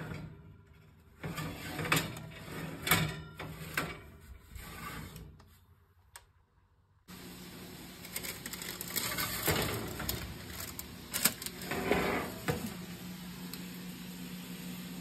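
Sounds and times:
metal tray scraping on oven rack: 0.0s - 5.6s, 8.2s - 12.9s.

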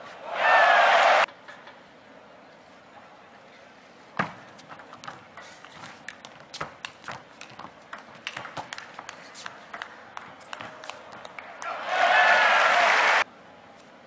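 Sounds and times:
table tennis ball clicks: 4.8s - 11.7s.

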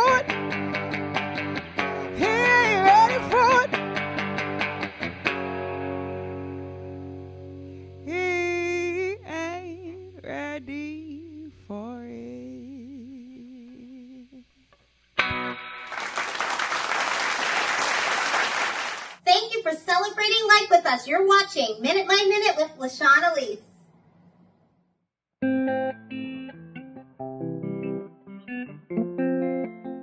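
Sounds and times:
electric guitar chord ringing: 0.0s - 10.4s, 15.2s - 15.9s, 25.4s - 30.0s
applause: 15.8s - 19.2s.

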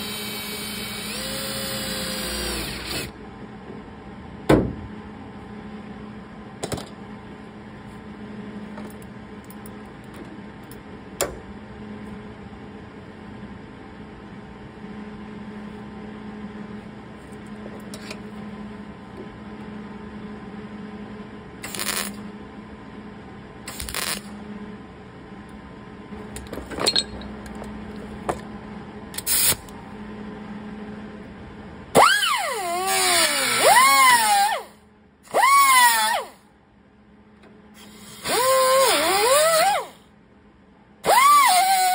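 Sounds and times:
power tool on sheet metal: 0.0s - 3.1s, 21.6s - 22.2s, 23.7s - 24.2s, 32.0s - 36.4s, 37.8s - 40.0s, 41.0s - 41.9s
power tool whine wavering in pitch: 0.0s - 3.2s, 32.0s - 36.5s, 37.8s - 40.0s
steady low hum: 0.0s - 32.9s, 34.5s - 35.3s, 36.3s - 38.2s, 39.8s - 41.1s
hand tools clinking: 26.7s - 27.6s.

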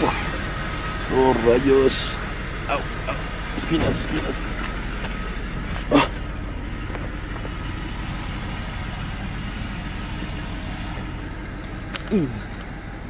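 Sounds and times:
pickup truck engine idling: 0.0s - 13.0s.

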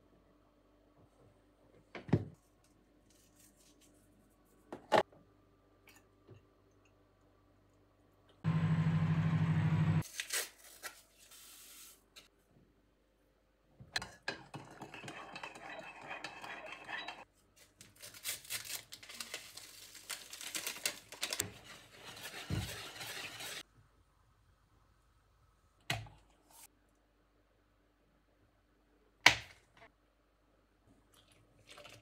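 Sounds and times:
spoon stirring in ceramic mug: 14.0s - 17.2s
utensil stirring flour in bowl: 14.0s - 17.2s, 21.4s - 23.6s.

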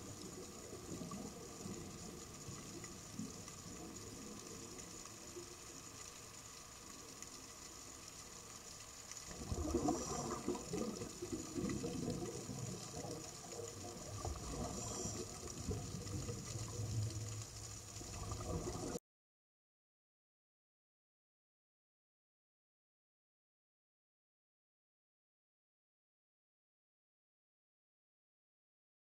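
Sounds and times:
underwater water rush: 0.0s - 19.0s.

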